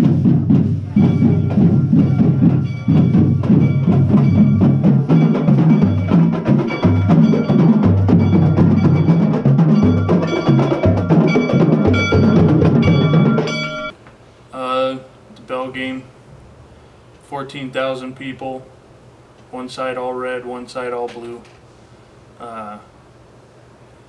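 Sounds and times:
bass line: 0:00.0 - 0:13.9
high ringing tones: 0:00.0 - 0:14.0
music with percussion beat: 0:00.0 - 0:14.0.

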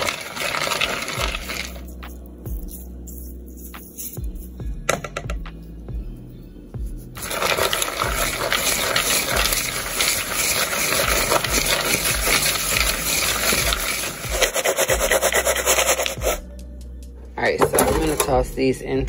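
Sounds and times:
seeds rattling in a bowl: 0:00.0 - 0:04.5, 0:07.2 - 0:16.4.

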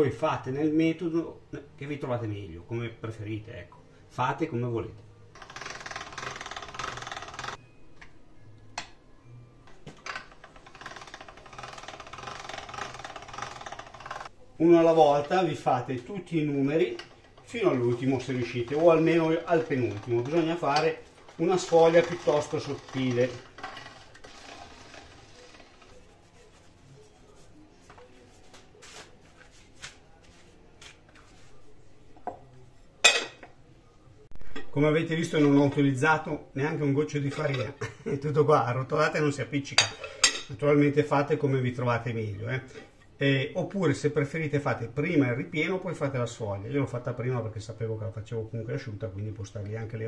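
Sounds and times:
pasta machine gears rattling: 0:05.3 - 0:07.6, 0:10.0 - 0:14.3, 0:16.6 - 0:26.0.

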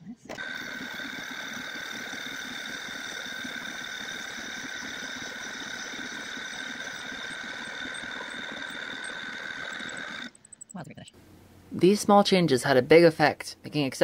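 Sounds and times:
lathe motor whine: 0:00.4 - 0:10.4.

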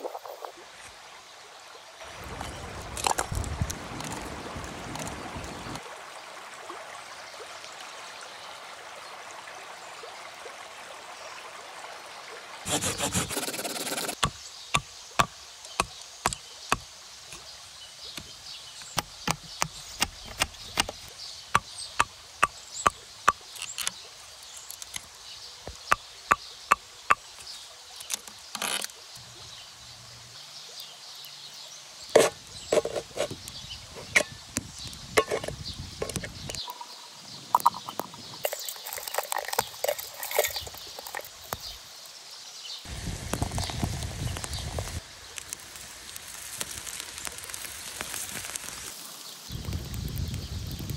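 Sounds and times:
small fire crackling: 0:02.0 - 0:05.8, 0:42.8 - 0:50.9.

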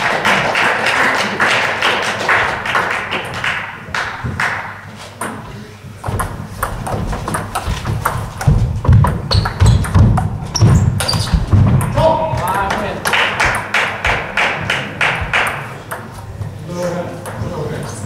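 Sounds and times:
crowd noise: 0:00.0 - 0:18.0
footfalls on wooden floor: 0:06.1 - 0:12.4.

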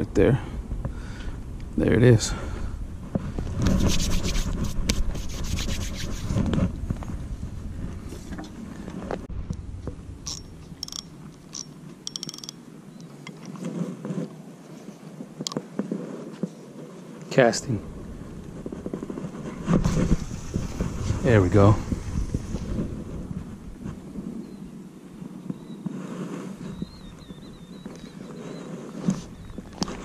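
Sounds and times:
fishing rod scraping and rubbing: 0:03.6 - 0:06.5, 0:10.3 - 0:12.6
fishing reel clicks and ticks: 0:10.3 - 0:12.6.

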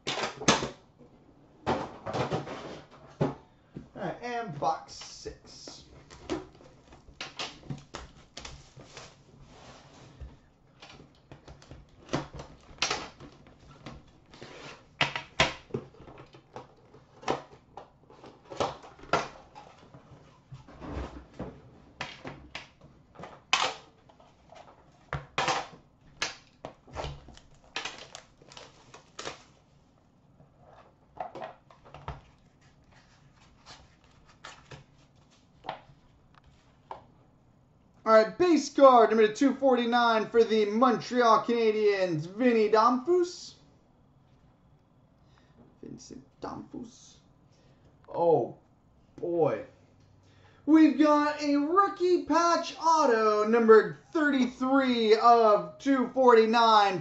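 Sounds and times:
cellophane tearing and crinkling: 0:27.1 - 0:29.6.

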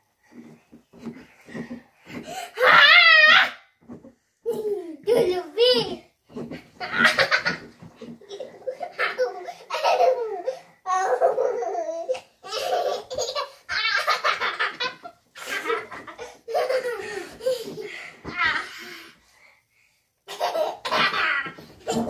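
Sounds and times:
children laughing: 0:06.8 - 0:17.9.

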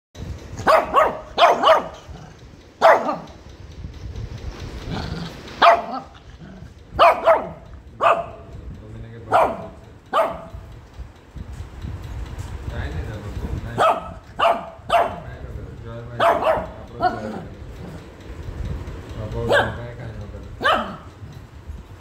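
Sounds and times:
puppy barking: 0:00.6 - 0:02.2, 0:02.8 - 0:03.4, 0:05.6 - 0:06.2, 0:07.0 - 0:08.4, 0:09.3 - 0:10.6, 0:13.8 - 0:15.3, 0:16.2 - 0:17.4, 0:19.4 - 0:19.8, 0:20.6 - 0:21.1.

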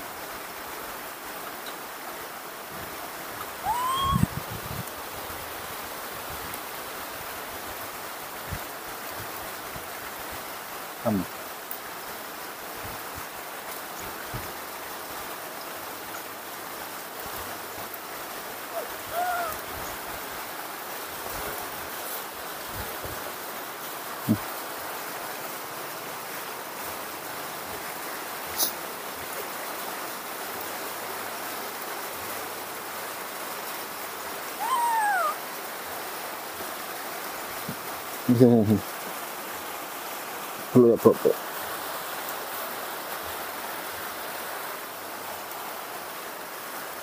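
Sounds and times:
steady rain hissing: 0:00.0 - 0:47.0
brief high calls: 0:03.6 - 0:04.4, 0:18.7 - 0:19.6, 0:34.6 - 0:35.4.

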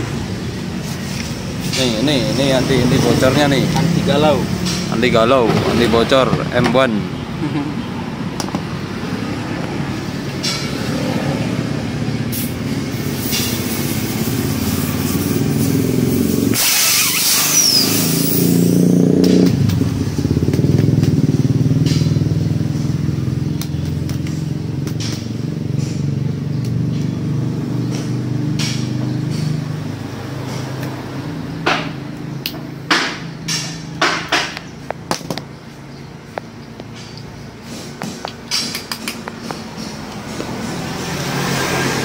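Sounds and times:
motorcycle engine droning: 0:01.4 - 0:33.9
loud hiss: 0:12.3 - 0:18.7
hand tools clicking and knocking: 0:36.3 - 0:41.0.

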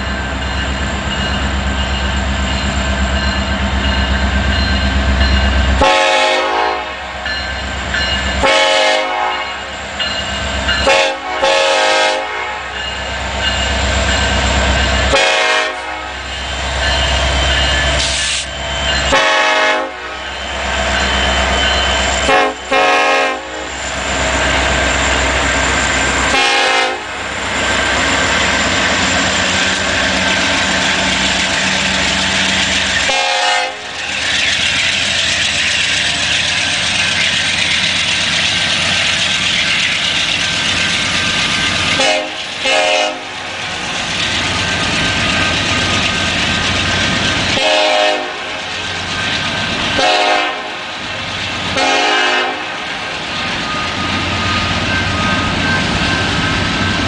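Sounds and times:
rushing of passing train cars: 0:00.0 - 0:57.0
locomotive air horn blasts: 0:05.8 - 0:07.2, 0:08.4 - 0:09.6, 0:10.8 - 0:12.8, 0:15.1 - 0:16.2, 0:19.1 - 0:20.2, 0:22.2 - 0:23.7, 0:26.3 - 0:27.2, 0:33.1 - 0:33.9, 0:42.0 - 0:43.4, 0:47.6 - 0:48.5, 0:50.0 - 0:50.8, 0:51.8 - 0:52.8
train wheels clicking over rail joints: 0:27.0 - 0:47.8.

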